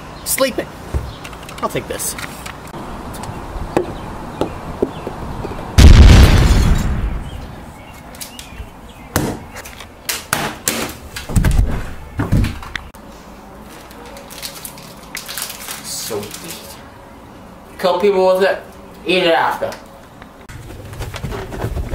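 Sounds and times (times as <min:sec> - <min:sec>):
sharp knocks and heavy thuds: 0:00.9 - 0:01.2, 0:09.1 - 0:09.5, 0:10.3 - 0:12.7
loud crash: 0:05.8 - 0:07.4.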